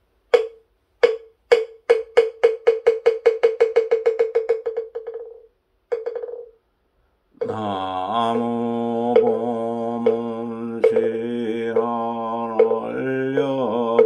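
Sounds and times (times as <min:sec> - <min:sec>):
wooden fish struck and rolled: 0:00.4 - 0:06.5
person chanting: 0:07.4 - 0:14.0.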